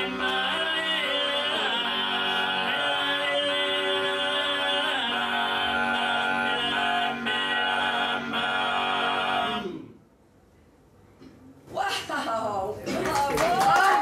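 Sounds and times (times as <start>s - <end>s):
men singing in close harmony: 0.0s - 9.8s.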